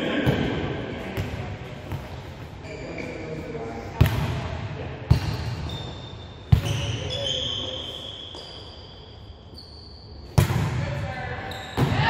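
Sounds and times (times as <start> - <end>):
sneakers squeaking on court: 1.2 - 3.6, 5.1 - 10.7, 11.4 - 12.0.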